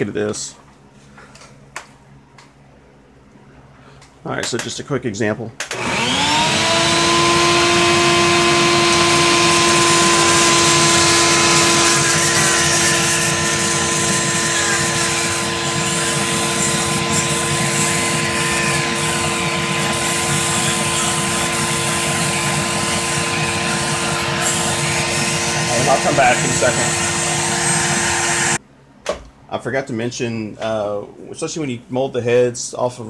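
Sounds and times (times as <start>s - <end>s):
vacuum motor whine: 5.7s - 28.6s
rotary tool grinding: 5.8s - 28.6s.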